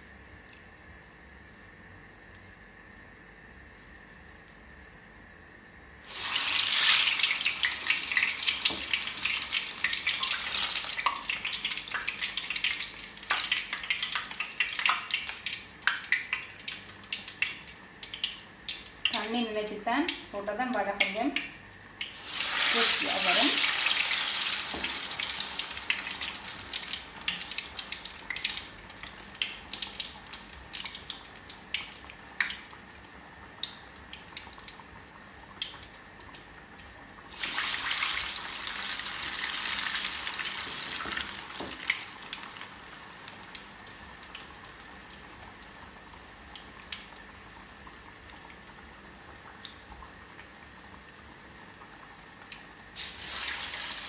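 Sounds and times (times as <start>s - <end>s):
batter sizzling in hot oil: 6.0s - 54.0s.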